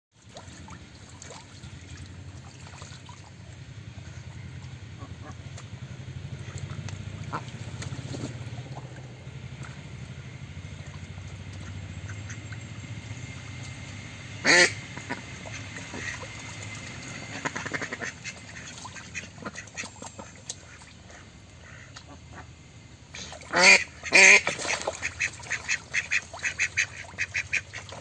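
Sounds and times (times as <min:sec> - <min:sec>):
ducks splashing in shallow water: 0:00.1 - 0:28.0
loud duck quack: 0:14.4 - 0:16.3, 0:17.3 - 0:22.5, 0:23.1 - 0:28.0.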